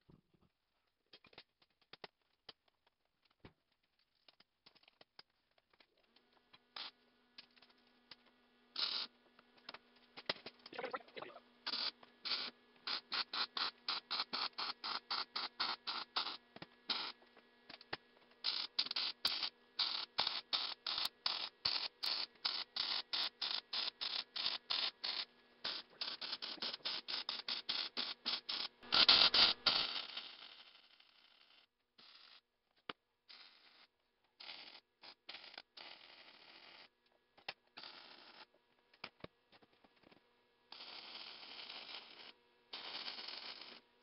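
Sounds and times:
welder arc crackling in bursts: 6.7s - 30.2s.

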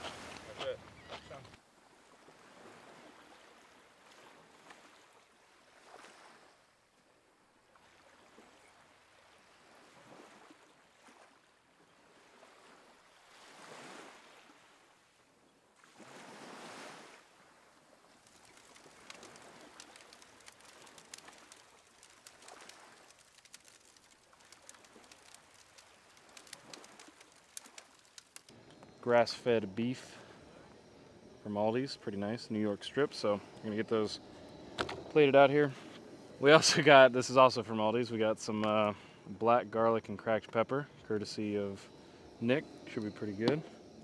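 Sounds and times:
faint surf washing on beach: 0.0s - 6.5s, 15.8s - 44.0s
small sharp crackles: 18.0s - 37.7s, 38.3s - 39.2s, 41.2s - 44.0s.

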